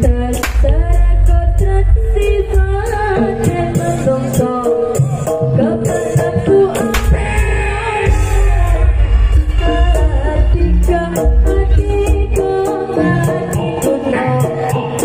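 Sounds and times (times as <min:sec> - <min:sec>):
drums: 0:00.0 - 0:15.0
person singing: 0:00.0 - 0:15.0
sharp crack: 0:00.4 - 0:00.8, 0:06.9 - 0:07.4.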